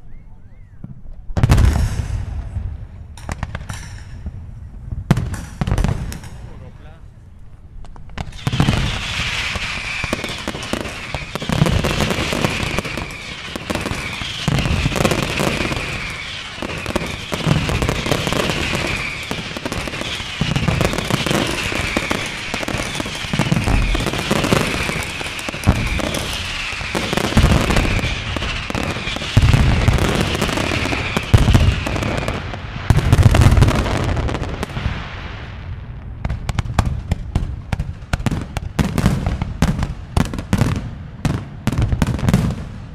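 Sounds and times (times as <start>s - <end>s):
firework shells booming: 0.8s - 6.7s, 7.8s - 42.9s
fireworks crackling: 7.8s - 42.9s
high falling firework chirp: 8.2s - 35.6s.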